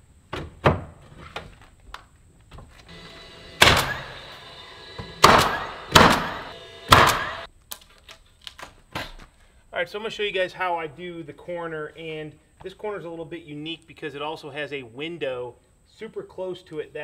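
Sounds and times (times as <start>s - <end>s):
nail gun firing: 3.6s - 4.4s, 5.0s - 7.5s.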